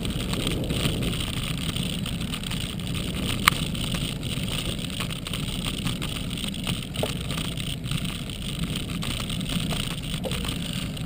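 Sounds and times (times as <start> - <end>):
bicycle clicks and rattles: 0.0 - 11.0
wind and road noise: 0.0 - 11.0.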